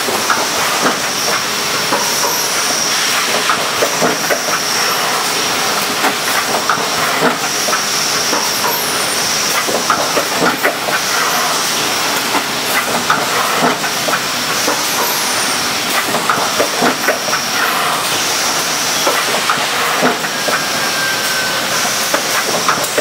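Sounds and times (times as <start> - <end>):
clattering machine mechanism: 0.0 - 23.0
machine air hiss: 0.0 - 23.0
short high falling squeal: 20.3 - 21.9.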